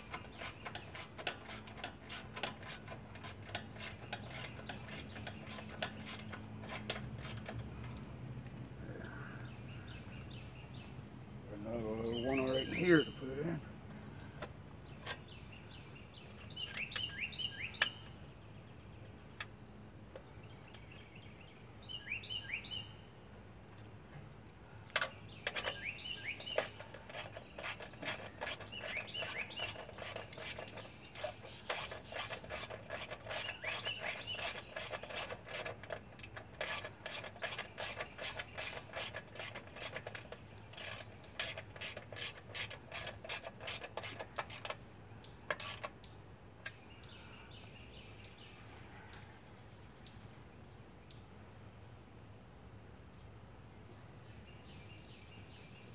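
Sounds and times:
ratchet wrench clicking: 0.0 - 7.6, 26.6 - 44.9, 45.5 - 46.0
birds chirping: 0.0 - 55.9.

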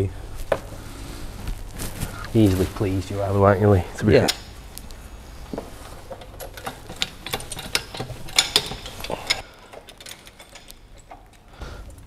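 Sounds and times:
metallic clicks of hand tools: 6.1 - 11.5.

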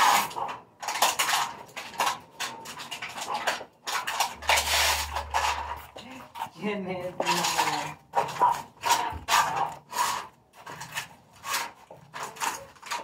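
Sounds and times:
scrap clattering and crinkling: 0.0 - 13.0
low steady hum: 4.2 - 8.0.

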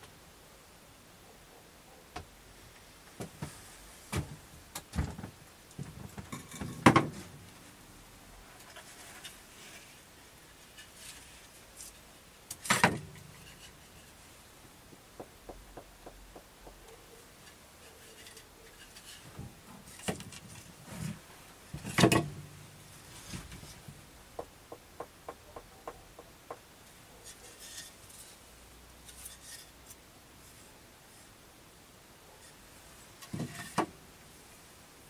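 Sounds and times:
sharp wooden knocks: 15.1 - 16.9, 24.4 - 26.7.

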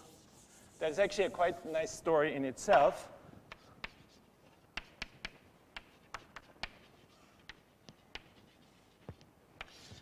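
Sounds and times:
chalk scraping: 0.0 - 2.1, 3.5 - 10.0
chalk tapping on blackboard: 3.5 - 10.0.

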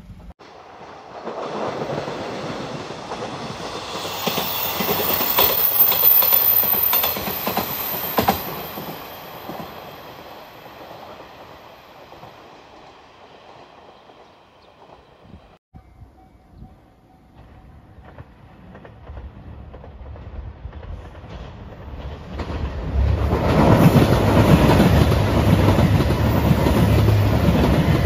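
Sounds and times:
train wheels clacking over rail joints: 0.7 - 9.9
high wheel squeal: 2.9 - 14.7.

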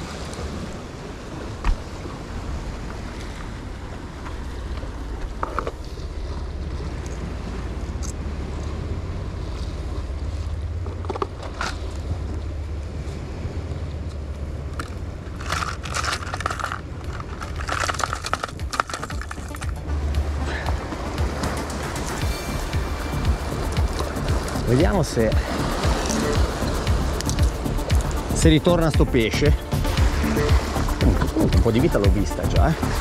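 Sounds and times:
surf breaking on rocks: 14.2 - 33.0
plastic lure box rattling: 15.3 - 19.8
wind buffeting microphone: 29.5 - 33.0.

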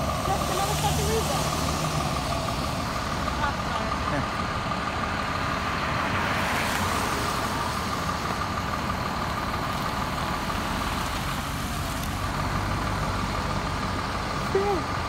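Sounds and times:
fire truck engine idling: 0.0 - 15.0.

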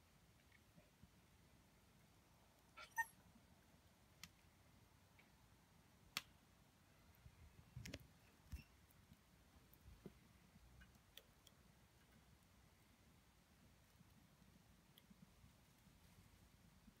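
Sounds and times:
wood fire crackling: 4.1 - 17.0.

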